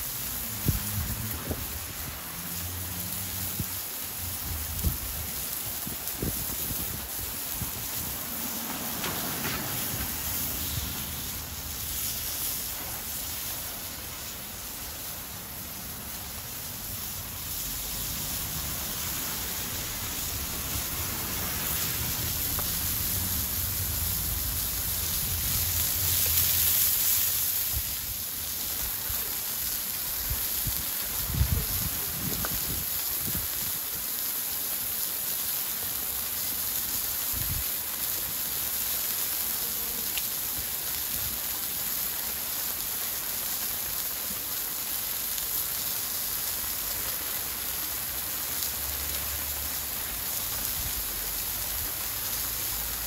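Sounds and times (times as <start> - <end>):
sausages sizzling in a frying pan: 0.0 - 53.0
wood fire burning: 0.0 - 53.0.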